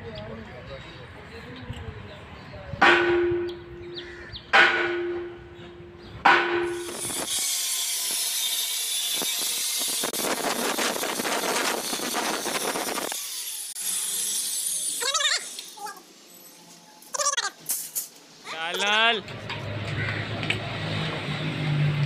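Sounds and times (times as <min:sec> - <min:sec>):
ringing metallic strikes: 0:02.8 - 0:06.9
angle grinder cutting steel: 0:06.6 - 0:16.5.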